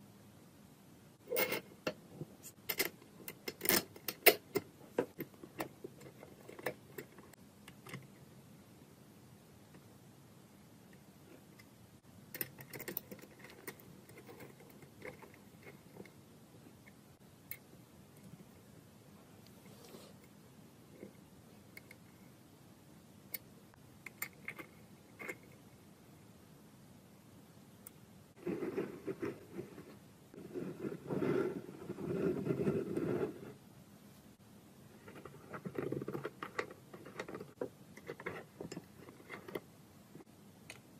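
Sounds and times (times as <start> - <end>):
small metal parts clicking and scraping: 1.3 - 8.1, 12.3 - 16.2.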